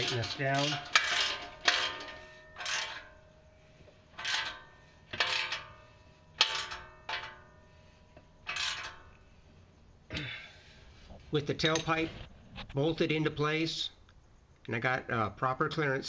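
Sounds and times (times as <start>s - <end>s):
metallic ring of pipe: 0.0s - 9.5s.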